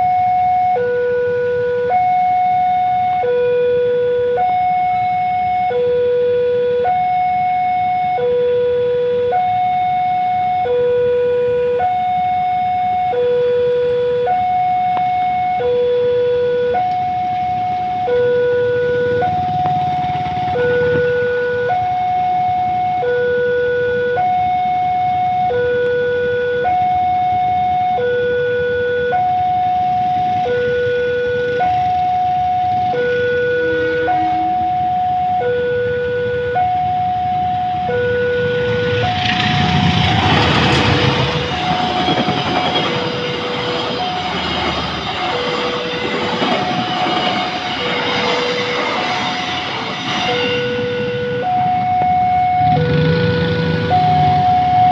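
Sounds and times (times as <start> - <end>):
level crossing two-tone alarm: 0.0 - 54.9
passing train rumbling: 13.8 - 23.0, 29.1 - 54.9.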